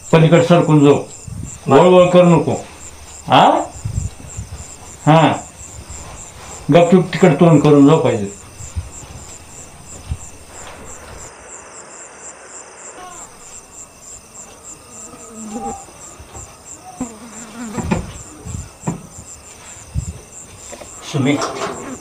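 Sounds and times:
crickets chirping: 0:00.0 - 0:22.0
rustles: 0:00.0 - 0:22.0
soft thumps: 0:08.4 - 0:11.3, 0:17.6 - 0:20.9.

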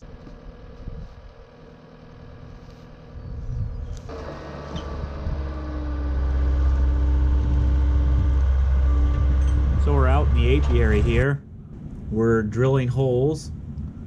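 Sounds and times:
loader engine running: 0:00.0 - 0:12.6
auger drilling a hole: 0:04.0 - 0:11.2.

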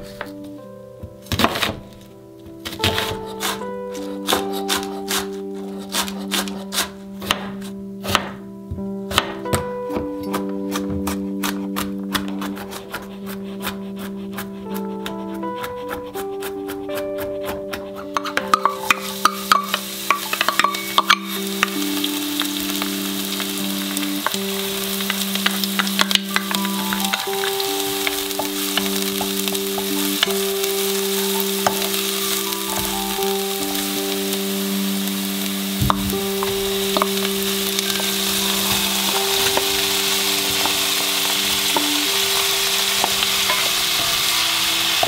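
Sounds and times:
food sizzling in a frying pan: 0:18.2 - 0:45.0.

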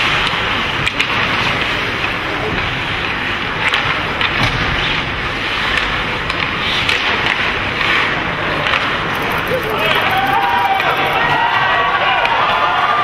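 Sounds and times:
hockey sticks and puck clicking: 0:00.0 - 0:01.8, 0:03.0 - 0:11.2
arena hum: 0:09.0 - 0:11.4.

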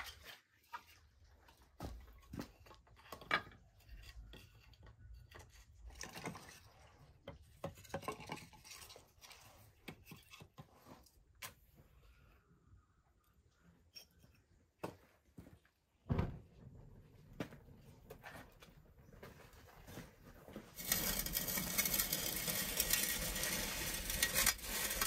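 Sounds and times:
utensils knocking and scraping: 0:07.2 - 0:10.8, 0:20.7 - 0:25.0.

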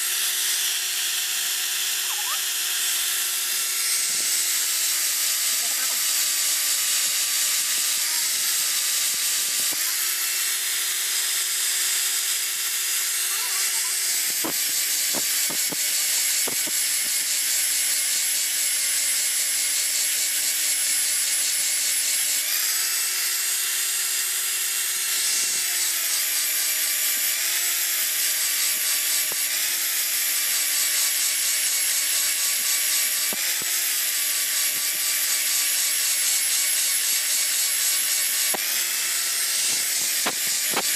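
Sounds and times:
angle grinder grinding steel: 0:00.0 - 0:40.9.

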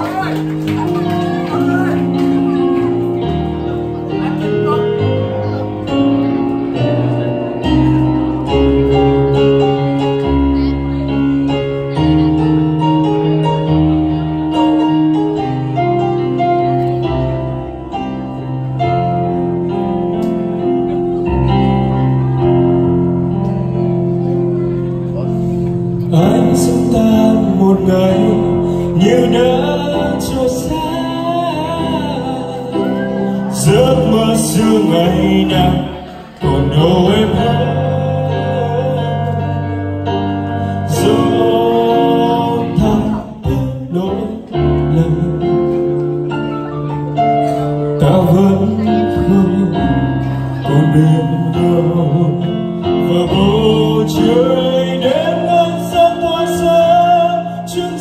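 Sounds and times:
instrumental accompaniment: 0:00.0 - 0:58.0
man singing into microphone: 0:25.9 - 0:58.0.

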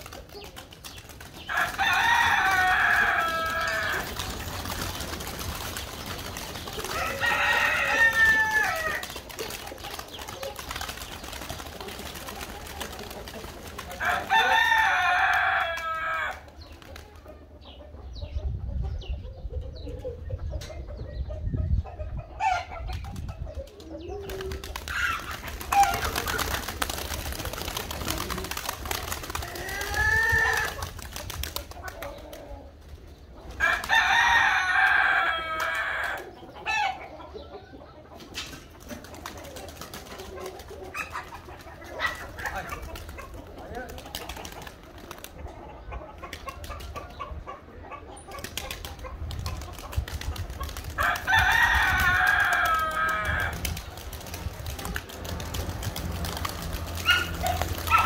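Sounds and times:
pigeon wings flapping: 0:00.0 - 0:17.2, 0:23.7 - 0:32.5, 0:38.4 - 0:45.4, 0:48.3 - 0:58.0
rooster crowing: 0:01.5 - 0:04.1, 0:06.9 - 0:09.0, 0:14.0 - 0:16.4, 0:33.6 - 0:36.2, 0:51.0 - 0:53.6.

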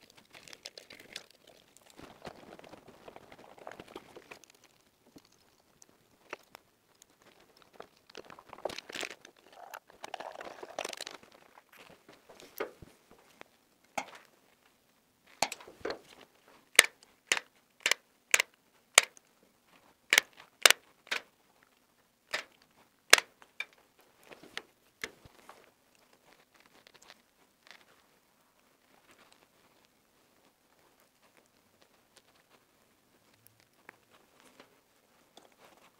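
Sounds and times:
rustling and scraping of wires: 0:00.0 - 0:17.2, 0:22.5 - 0:35.9
pliers snipping cable: 0:16.8 - 0:19.1.

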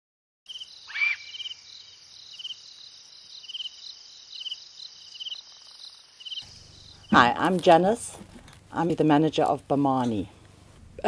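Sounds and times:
cricket chirping: 0:00.5 - 0:07.5
insects trilling: 0:00.5 - 0:07.7.

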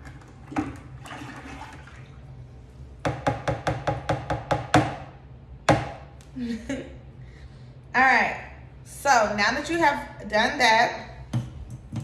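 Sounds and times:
liquid sloshing: 0:00.0 - 0:02.5.

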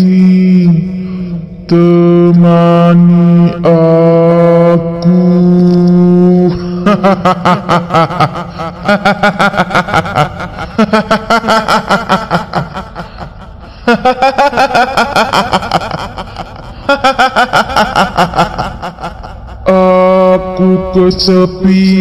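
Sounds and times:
woman cackling laugh: 0:06.7 - 0:19.6.

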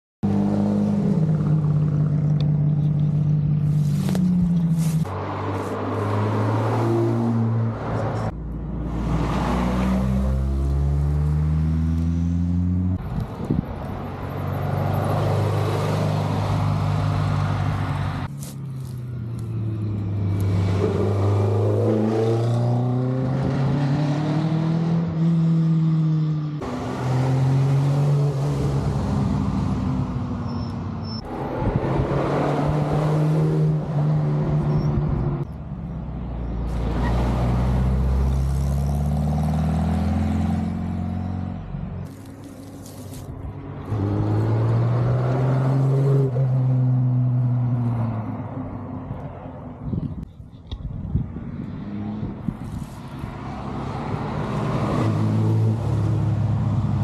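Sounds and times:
sports car engines accelerating: 0:00.2 - 0:13.2
cars passing by: 0:00.2 - 0:57.0.

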